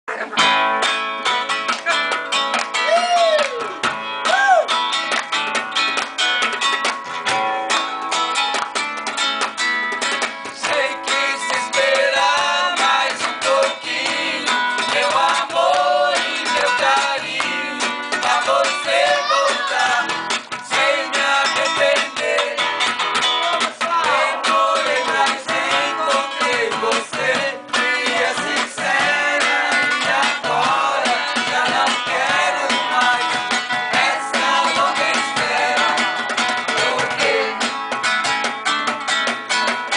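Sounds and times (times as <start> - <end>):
acoustic guitar strumming: 0.1 - 2.9, 3.6 - 39.9
percussion hits: 0.4 - 39.9
group of people singing: 10.5 - 38.0.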